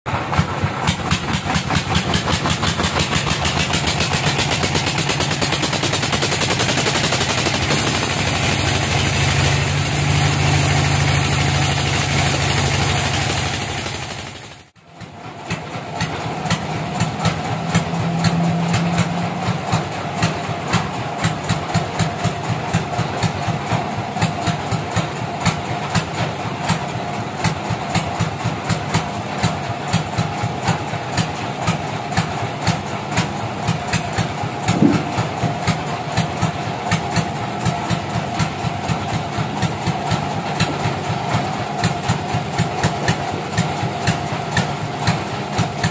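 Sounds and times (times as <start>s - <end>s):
sawmill machinery knocking: 0.1s - 45.9s.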